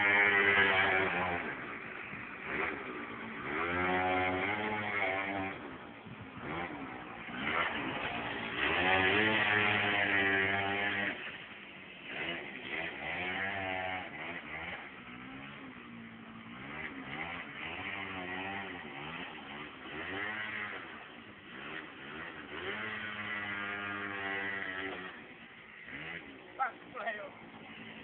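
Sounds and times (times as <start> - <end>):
scooter engine revving: 0.0 - 28.0.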